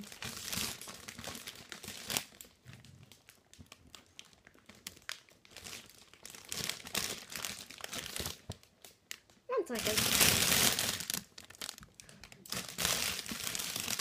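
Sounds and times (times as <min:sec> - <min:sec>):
plastic packaging crinkling: 0:00.0 - 0:14.0.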